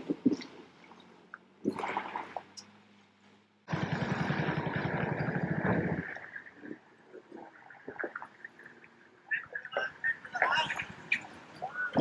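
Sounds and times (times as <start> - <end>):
diesel truck engine running: 2.4 - 7.0.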